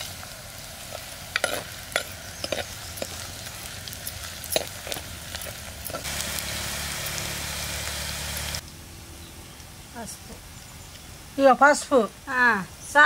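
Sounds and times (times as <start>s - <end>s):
food sizzling in oil: 0.0s - 8.6s.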